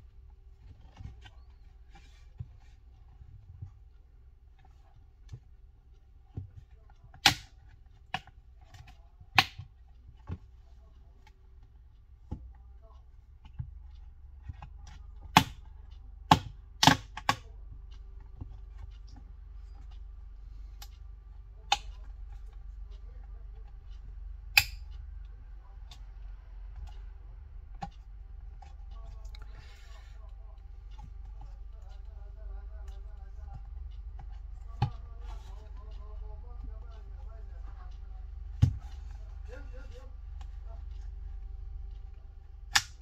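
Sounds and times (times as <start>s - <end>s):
faint steady hum: 0.0s - 43.0s
sharp plastic clicks and snaps: 7.1s - 10.4s, 14.9s - 19.2s, 24.5s - 26.0s, 42.6s - 43.0s.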